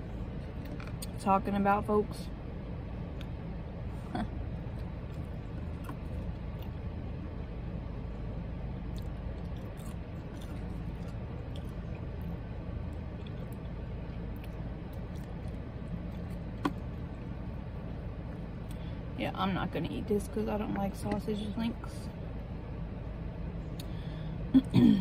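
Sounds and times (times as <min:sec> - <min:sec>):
low hum inside a car: 0:00.0 - 0:25.0
person chewing food: 0:04.7 - 0:06.8, 0:08.9 - 0:16.9.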